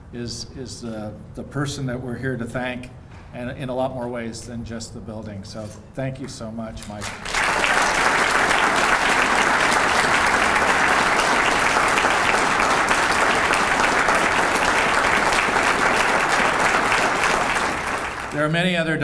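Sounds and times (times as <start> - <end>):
audience applauding: 7.0 - 18.5.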